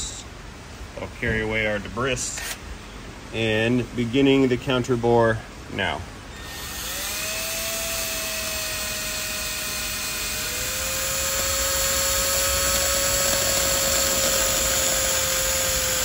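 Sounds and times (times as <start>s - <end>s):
cordless drill whining: 6.3s - 16.0s
drill bit scraping metal: 6.4s - 16.0s.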